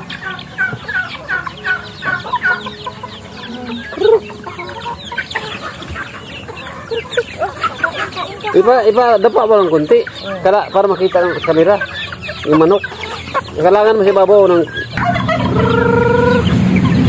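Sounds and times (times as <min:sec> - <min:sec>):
chickens clucking: 0:00.0 - 0:17.0
chicks peeping: 0:00.0 - 0:17.0
loud low chicken call: 0:09.6 - 0:17.0.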